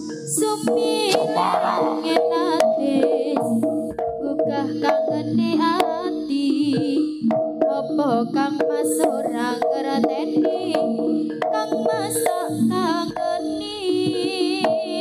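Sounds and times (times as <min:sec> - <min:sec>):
drum strokes: 0:00.0 - 0:07.9
person singing: 0:00.0 - 0:15.0.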